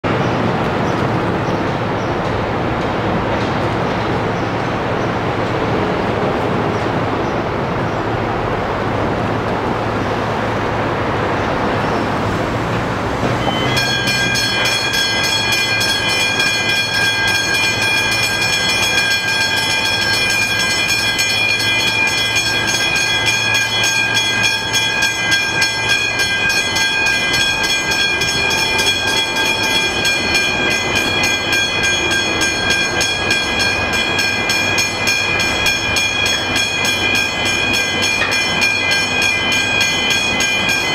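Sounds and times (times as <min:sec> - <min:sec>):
road traffic passing: 0:00.0 - 0:40.9
level crossing bells ringing: 0:13.2 - 0:40.9.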